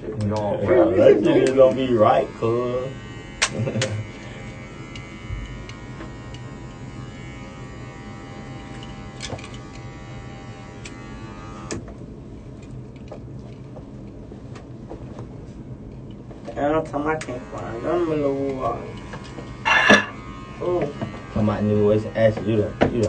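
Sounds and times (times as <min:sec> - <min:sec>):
electric hair clippers buzzing: 0:00.9 - 0:11.9, 0:17.0 - 0:23.0.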